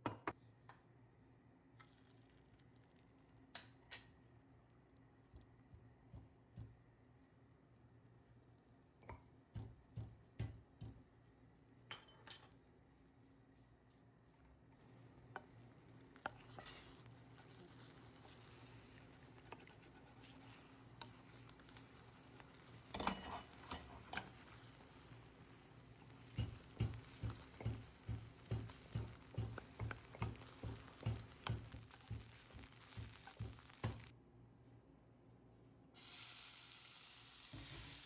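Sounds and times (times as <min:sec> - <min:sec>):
egg frying in oil: 0:01.8 - 0:11.9, 0:14.6 - 0:34.1, 0:36.0 - 0:38.0
wooden spatula tapping a pan: 0:09.0 - 0:11.1, 0:15.3 - 0:34.1.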